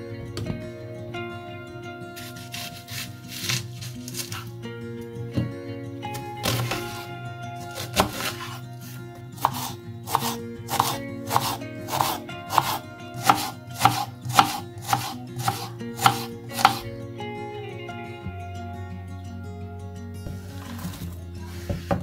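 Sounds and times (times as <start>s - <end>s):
soft background music: 0.0s - 22.0s
knife chopping on wooden board: 7.8s - 8.6s, 9.4s - 16.9s.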